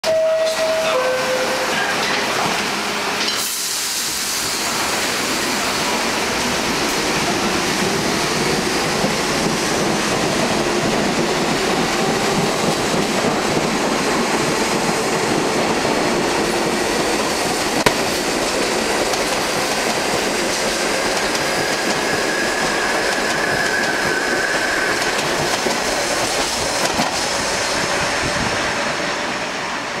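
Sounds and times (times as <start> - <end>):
two-note tone: 0.0 - 2.2
subway train wheel and rail noise: 0.0 - 30.0
high wheel squeal: 21.9 - 25.2.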